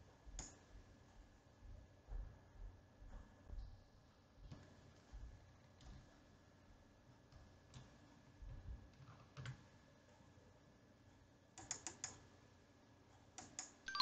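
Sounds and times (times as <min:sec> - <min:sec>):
computer mouse clicks: 0:00.4 - 0:00.6, 0:07.3 - 0:08.0, 0:08.9 - 0:09.7, 0:11.6 - 0:12.3, 0:13.3 - 0:14.0.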